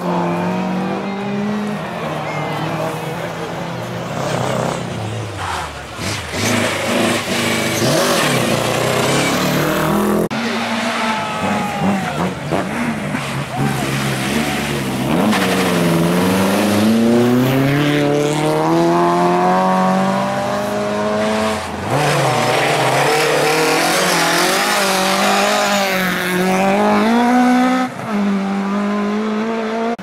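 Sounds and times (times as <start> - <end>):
car engine revving hard: 6.0 - 30.0.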